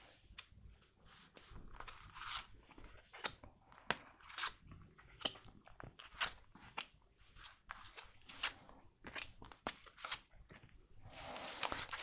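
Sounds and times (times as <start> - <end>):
cards sliding rustle: 1.2 - 4.6, 6.1 - 12.0.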